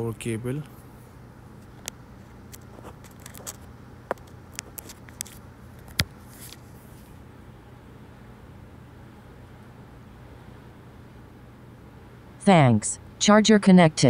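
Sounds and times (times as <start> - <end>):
low steady hum: 0.0 - 14.0
charging cable clicks and rustles: 1.6 - 6.7.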